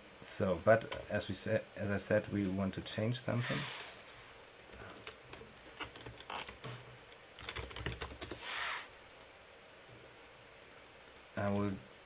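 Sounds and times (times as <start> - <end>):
brief hiss: 8.4 - 9.0.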